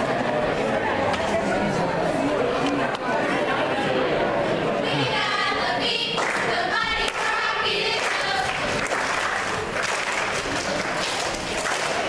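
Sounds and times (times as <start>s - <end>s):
cheerleaders chanting in unison: 4.8s - 10.3s
rhythmic clapping: 5.9s - 12.0s.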